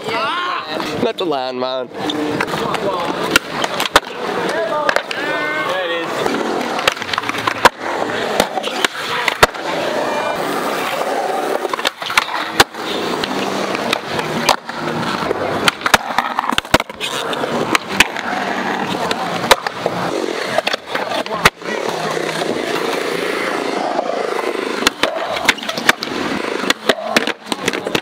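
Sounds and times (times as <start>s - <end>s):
skateboard wheels rolling on concrete: 0.0s - 28.0s
skateboard clacks: 1.9s - 28.0s.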